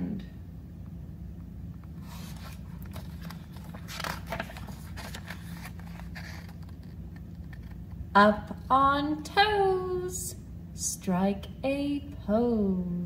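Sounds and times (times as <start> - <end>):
low steady hum: 0.0 - 13.0
paper pages turning: 1.9 - 8.0.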